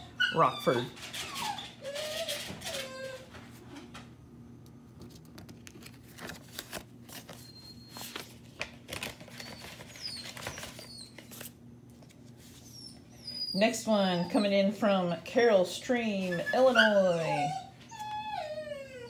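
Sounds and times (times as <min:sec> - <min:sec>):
paper rustling: 0:05.0 - 0:12.7.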